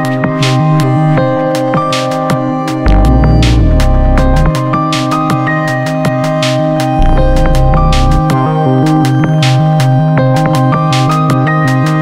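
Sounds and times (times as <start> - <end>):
electronic music with synth: 0.0 - 12.0
deep bass note: 2.9 - 4.5, 7.0 - 8.5.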